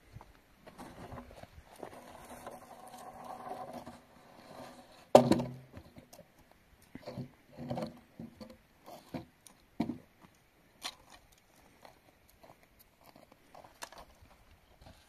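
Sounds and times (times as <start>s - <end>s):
wooden beam scraping on ground: 0.6s - 6.1s
footsteps on gravel: 10.8s - 15.0s.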